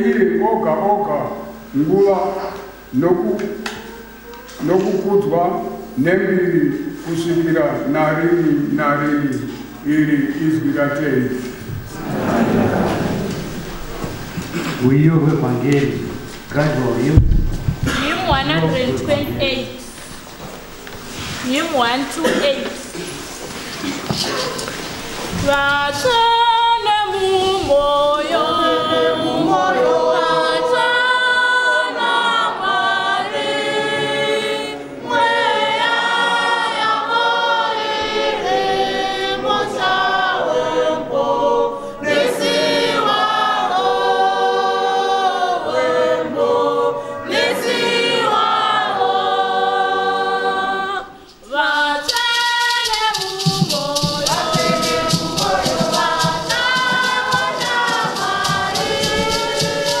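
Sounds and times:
congregation singing a hymn: 0.0 - 60.0
rhythmic shaker: 51.2 - 60.0.

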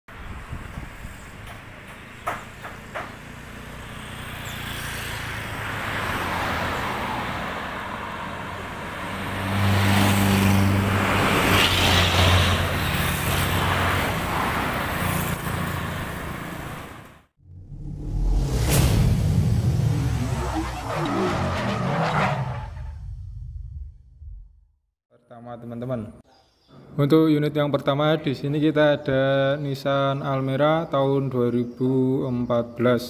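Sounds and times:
road traffic passing: 0.1 - 24.2.

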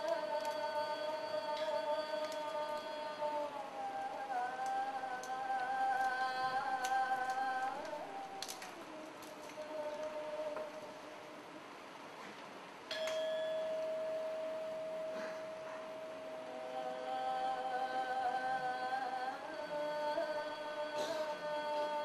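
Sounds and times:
metal bell ringing: 12.9 - 16.2
held wavering tones: 12.9 - 19.5.

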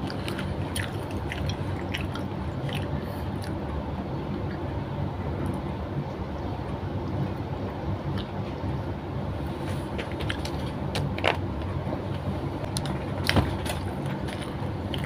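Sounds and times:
person chewing food: 0.0 - 3.7, 12.7 - 15.0.

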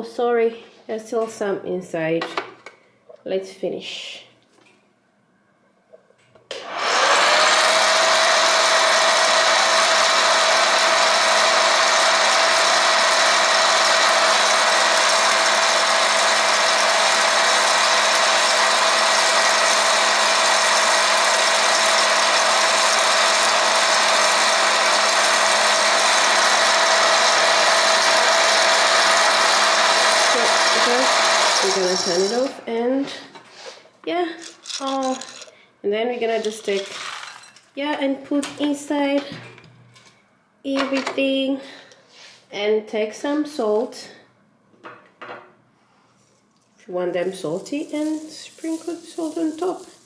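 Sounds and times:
popcorn machine fan whine: 6.5 - 32.3
kernels popping: 34.4 - 35.6, 36.2 - 37.8.

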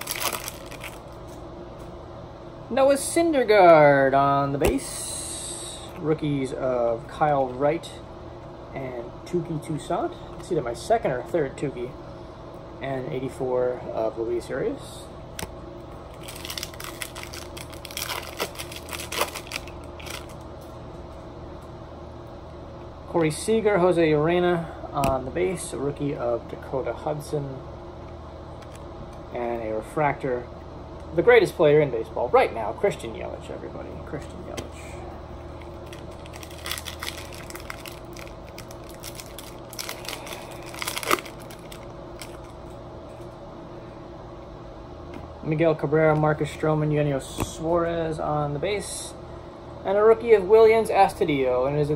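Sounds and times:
foil wrapper crinkling: 0.0 - 1.2, 16.1 - 20.4, 35.6 - 42.6
low hum: 0.0 - 50.1.

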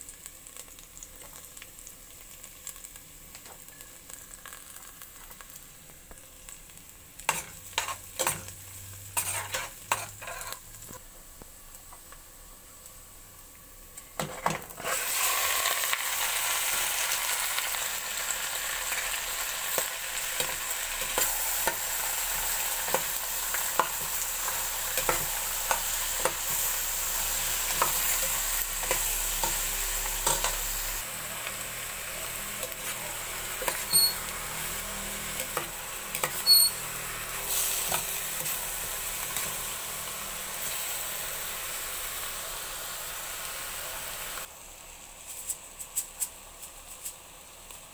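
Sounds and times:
meat sizzling in hot oil: 0.0 - 47.9
utensil scraping pot: 9.1 - 10.7, 33.6 - 34.3, 35.4 - 36.9.

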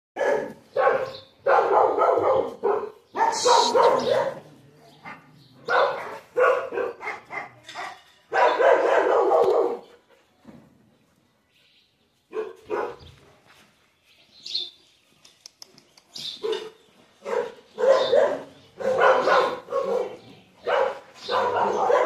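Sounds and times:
dogs barking: 0.2 - 10.0, 12.3 - 13.2, 16.4 - 22.0.

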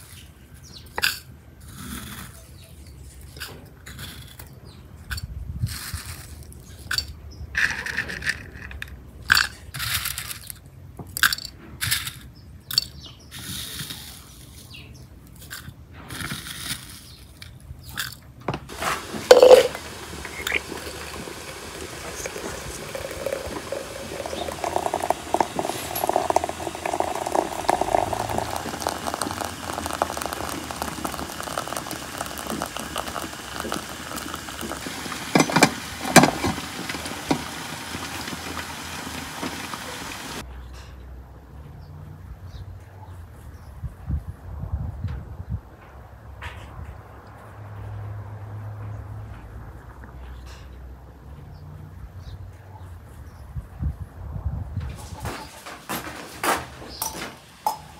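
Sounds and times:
water pouring into glass teapot: 18.7 - 40.4, 57.0 - 57.9
spoon clinking against glass: 18.8 - 21.1, 21.7 - 33.8, 57.0 - 57.9.

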